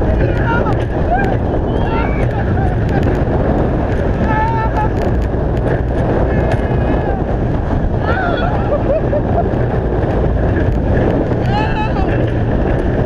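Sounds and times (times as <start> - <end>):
wind roar over microphone: 0.0 - 13.0
riders screaming: 0.2 - 2.9, 4.1 - 5.2, 6.3 - 9.1.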